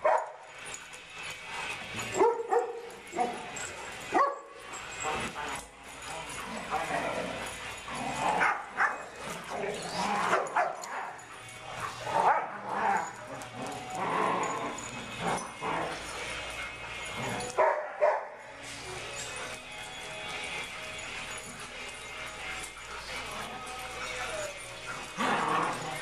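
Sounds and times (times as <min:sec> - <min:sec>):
dogs barking: 0:00.0 - 0:19.3.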